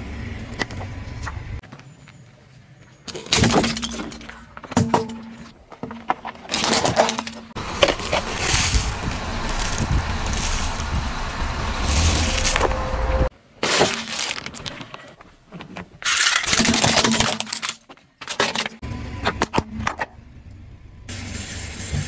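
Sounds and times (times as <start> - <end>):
plastic bottle crackling: 7.6 - 10.9
popcorn crunching under tyre: 7.6 - 13.1
car rumble: 7.6 - 13.3.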